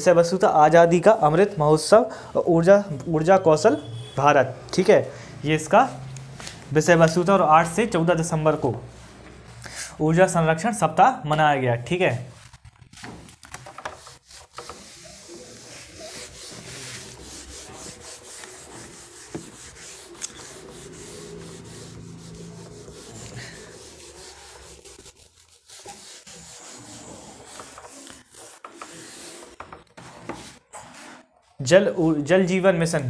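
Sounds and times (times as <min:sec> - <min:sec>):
scratchy rubbing: 0:12.2 - 0:31.2.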